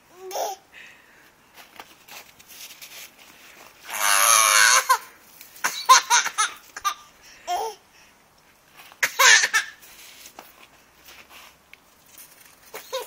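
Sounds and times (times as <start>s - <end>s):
baby laughing in squeals: 3.9s - 5.1s, 9.0s - 9.8s, 12.7s - 13.0s.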